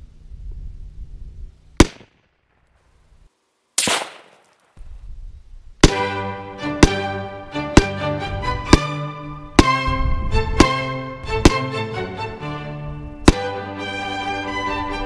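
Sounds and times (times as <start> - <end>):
rifle shots: 1.8 - 2.6, 3.8 - 4.8
violin music: 5.8 - 15.0.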